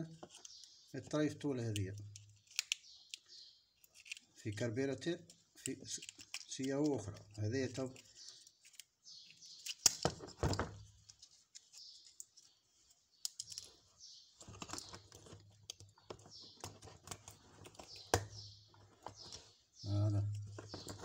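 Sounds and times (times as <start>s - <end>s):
small metallic clicks: 1.7s - 4.6s, 5.2s - 10.2s, 11.0s - 13.8s.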